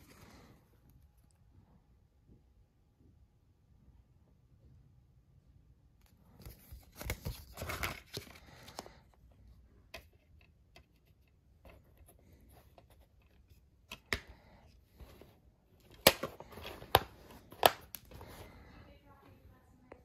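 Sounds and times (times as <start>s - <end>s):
paper insert rustling: 6.3s - 9.1s.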